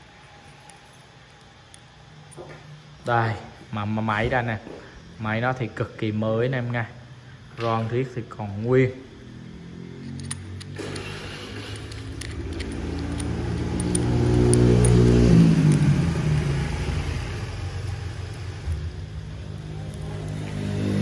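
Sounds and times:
vehicle engine passing by: 0:09.2 - 0:21.0.

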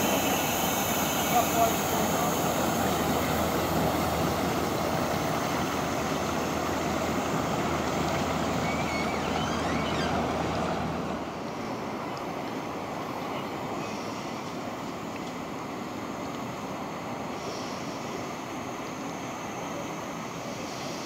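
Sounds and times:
steam boat rushing hiss: 0:00.0 - 0:21.0
faint bird chirps: 0:08.6 - 0:10.2.

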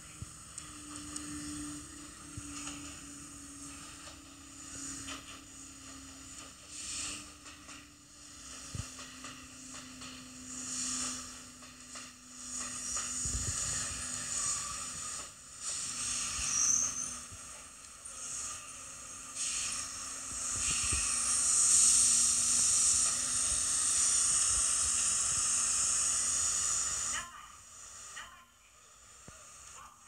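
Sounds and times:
train hissing: 0:00.0 - 0:30.0.

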